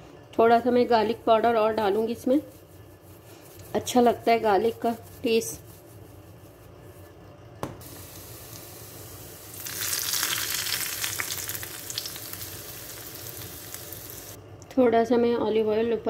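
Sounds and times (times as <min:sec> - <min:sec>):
hot oil sizzling: 0:07.8 - 0:14.4.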